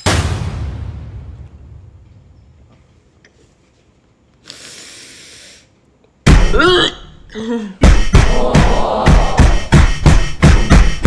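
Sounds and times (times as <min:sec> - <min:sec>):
loud music: 0:06.3 - 0:06.8, 0:07.8 - 0:11.0.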